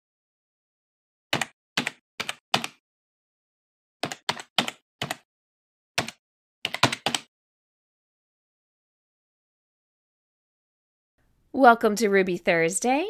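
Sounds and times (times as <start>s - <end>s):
computer keyboard keystrokes: 1.4s - 2.8s, 4.0s - 5.2s, 6.0s - 7.3s.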